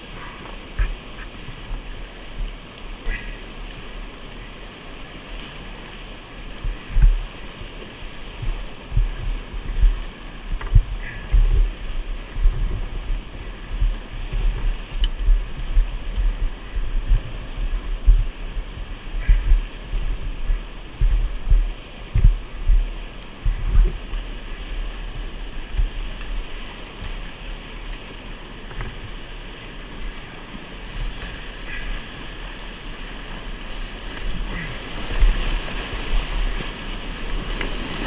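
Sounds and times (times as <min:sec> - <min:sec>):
whitewater rushing: 0:00.0 - 0:38.0
low thumps: 0:06.6 - 0:07.3, 0:08.4 - 0:24.1.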